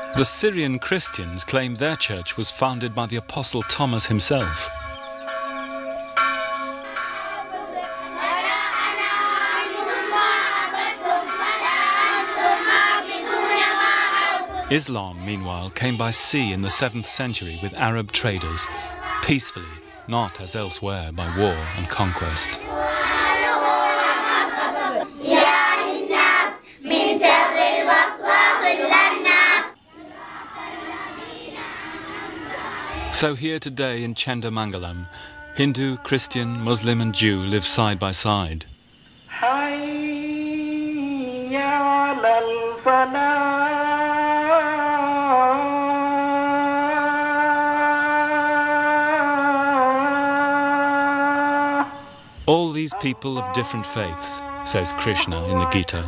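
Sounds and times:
congregation singing: 0.0 - 38.5, 39.3 - 56.0
children singing together: 7.2 - 33.2.

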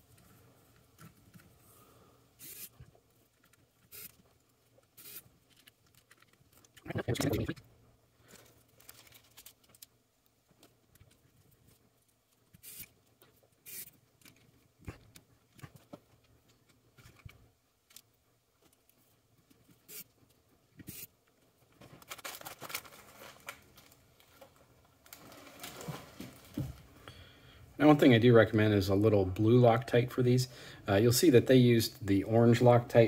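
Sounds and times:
rustling and rubbing: 21.7 - 27.0.

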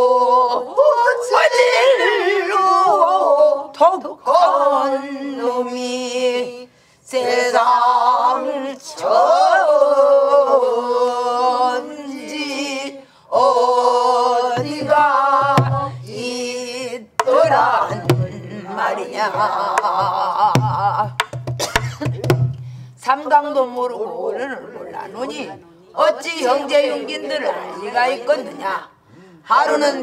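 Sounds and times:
woman singing: 0.0 - 21.2
barrel drum strokes: 14.6 - 16.2.

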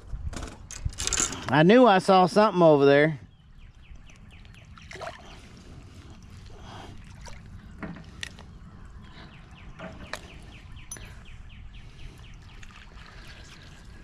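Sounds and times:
water lapping: 3.8 - 14.0.

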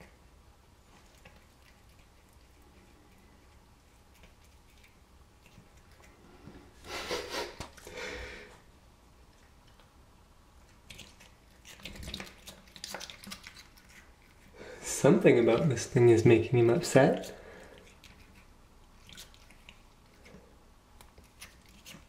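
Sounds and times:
cat chewing and lip-smacking: 0.0 - 6.8, 9.2 - 14.6, 17.1 - 22.0.

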